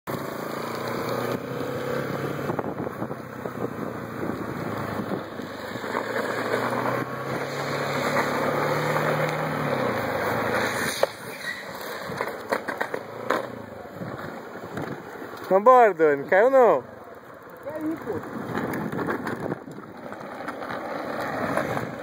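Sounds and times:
plastic wheels rushing on asphalt: 0.1s - 22.0s
wind on microphone: 2.3s - 5.3s.

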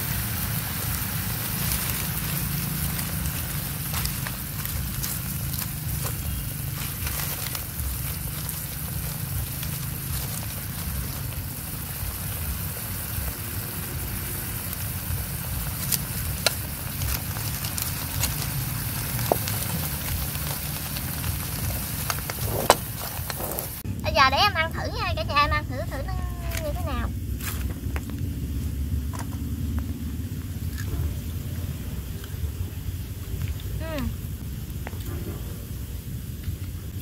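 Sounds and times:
sauce sizzling in a wok: 0.0s - 27.3s
fire crackling and popping: 0.0s - 37.0s
low rumble: 0.0s - 37.0s.

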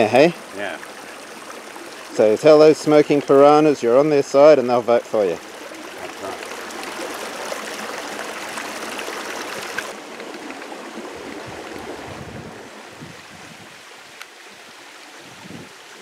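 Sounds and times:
creek water trickling over rocks: 0.0s - 16.0s.

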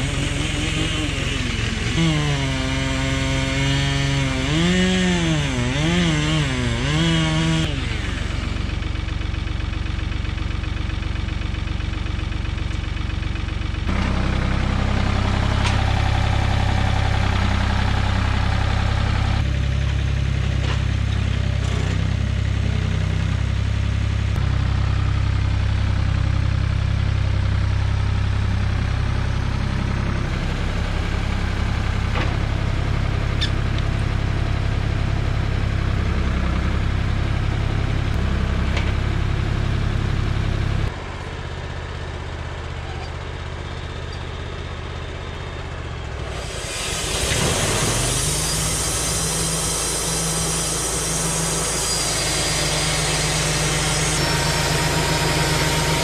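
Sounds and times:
chainsaw revving: 0.0s - 8.6s, 46.3s - 56.0s
tractor engine running: 0.0s - 56.0s.

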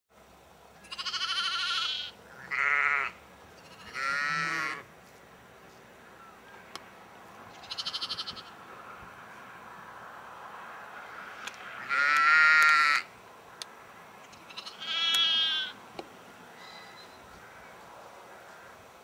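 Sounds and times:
sheep bleating: 0.8s - 4.9s, 7.6s - 8.6s, 11.8s - 13.1s, 14.4s - 15.8s.

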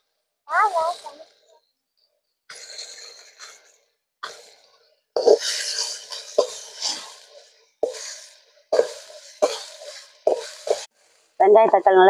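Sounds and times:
ladle scraping frying onions: 5.2s - 11.4s.

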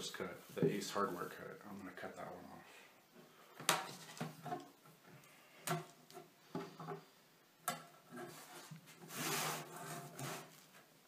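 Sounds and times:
sliding scrape: 8.1s - 10.7s.

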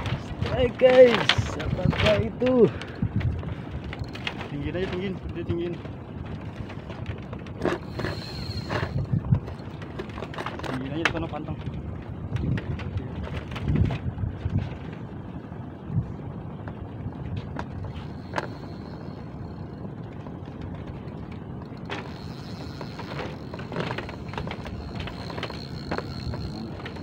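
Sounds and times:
fishing reel drag whining: 7.6s - 9.6s, 17.8s - 19.8s, 21.8s - 27.0s.

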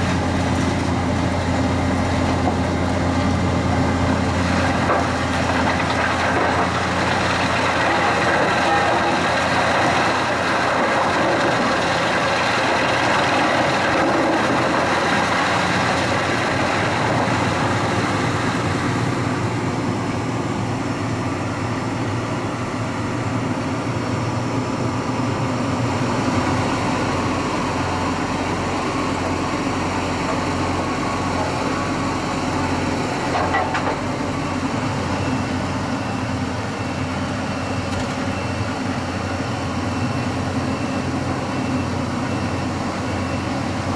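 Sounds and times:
wood chipper chipping wood: 0.0s - 19.1s, 26.4s - 35.2s
low engine hum: 0.0s - 43.9s.

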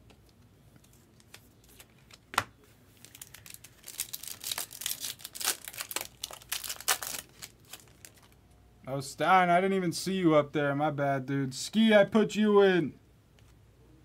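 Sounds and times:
foil wrapper tearing and crinkling: 3.0s - 8.4s.

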